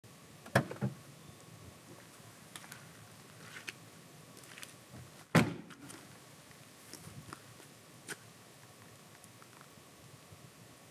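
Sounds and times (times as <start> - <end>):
truck door clunks: 0.4 - 1.0, 5.3 - 5.7
door shutting with thud: 5.3 - 5.7.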